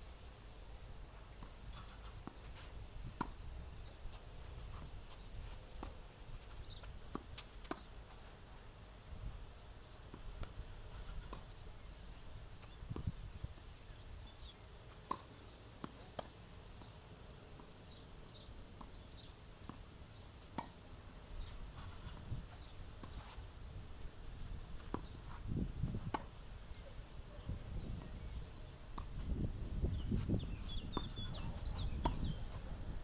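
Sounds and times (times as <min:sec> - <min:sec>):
birds chirping: 0:01.0 - 0:33.0
tennis balls bouncing and hit: 0:01.3 - 0:08.8, 0:09.6 - 0:11.6, 0:12.5 - 0:26.8, 0:27.9 - 0:29.4, 0:30.3 - 0:31.2, 0:31.8 - 0:33.0
wind rumble on microphone: 0:01.8 - 0:05.6, 0:12.2 - 0:14.3, 0:21.4 - 0:22.9, 0:23.6 - 0:33.0.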